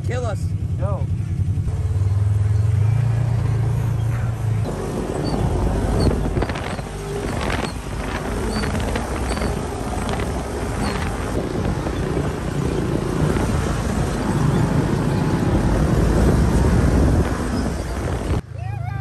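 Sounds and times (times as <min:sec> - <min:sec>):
utility vehicle engine running: 0:00.0 - 0:18.7
nearby quad engines: 0:00.0 - 0:19.0
wind rushing over microphone: 0:04.4 - 0:19.0.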